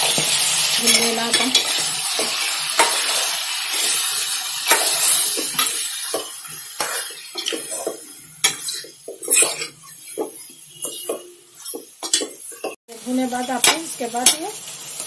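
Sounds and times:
chicken sizzling in oil: 0.0 - 15.0
metal spoon scraping a pot: 6.8 - 12.8.

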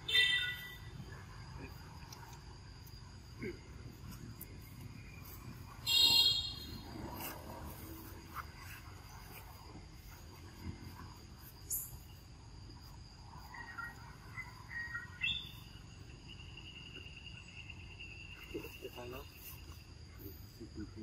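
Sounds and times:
short chirping calls: 0.0 - 2.4, 11.5 - 12.3, 13.3 - 19.8
insects trilling: 0.0 - 21.0
lower insect tone: 0.0 - 21.0.

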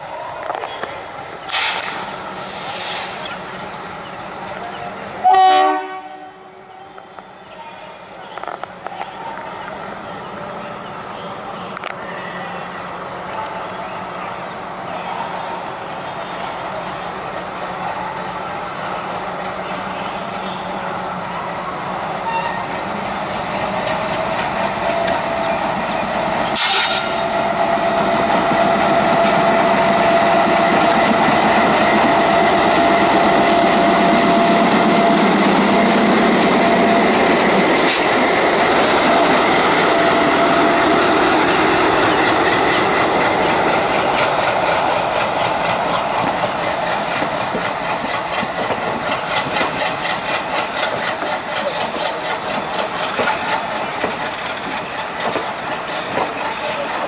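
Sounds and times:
diesel locomotive rumble: 15.7 - 57.0
locomotive whine: 18.2 - 57.0
train wheels clickety-clack: 22.3 - 57.0.

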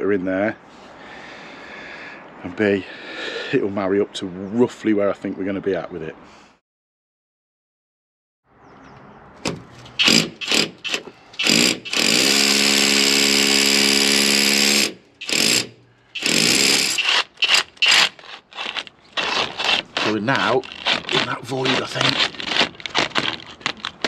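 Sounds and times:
hammer drill boring into brick: 10.0 - 24.0.

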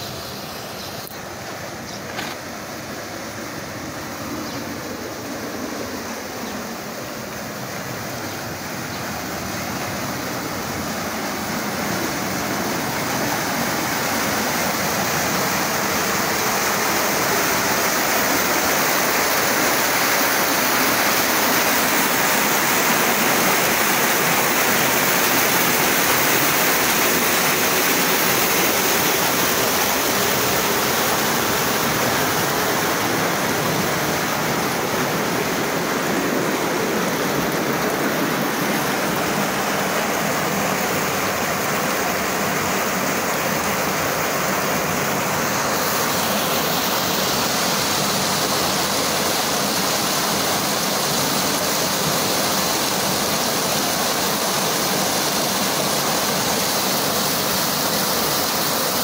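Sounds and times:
water rushing in a channel: 0.0 - 59.0.

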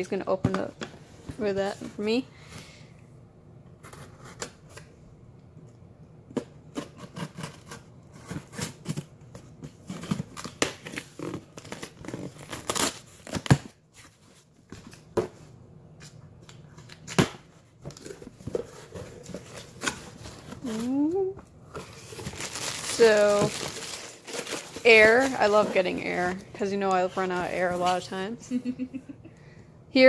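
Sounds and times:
tape tearing: 9.8 - 13.8
cardboard rustling: 17.9 - 26.5.

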